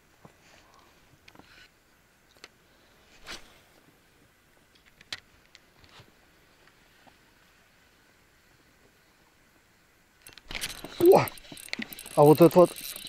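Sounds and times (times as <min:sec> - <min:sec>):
short rustle: 0:03.1 - 0:03.8.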